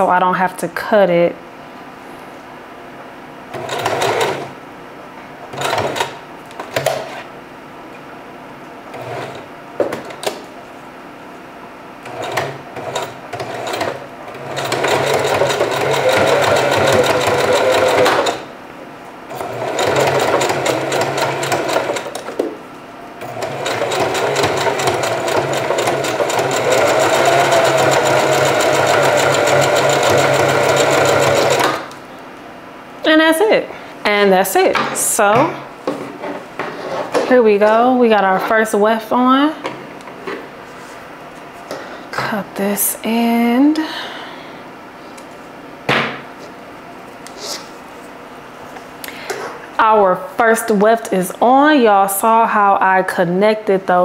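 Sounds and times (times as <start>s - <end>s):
sewing machine stitching: 3.5s - 4.5s, 12.0s - 18.5s, 19.3s - 22.3s, 23.2s - 31.9s.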